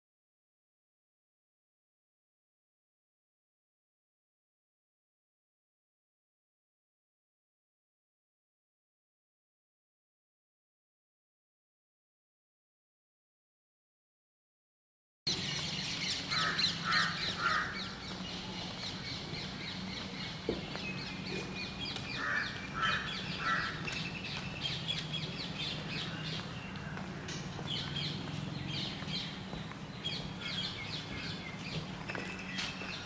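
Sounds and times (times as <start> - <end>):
small birds chirping: 15.3 - 33.0
crows cawing: 16.3 - 18.0, 22.1 - 24.0.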